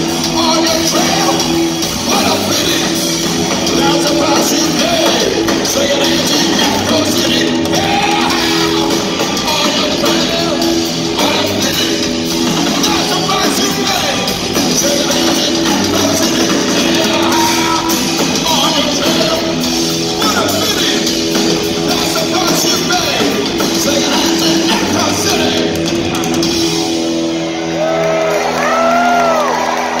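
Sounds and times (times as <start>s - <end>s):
live rock band playing: 0.0s - 30.0s
person shouting lead vocal: 0.4s - 1.5s, 3.8s - 10.6s, 16.9s - 18.0s.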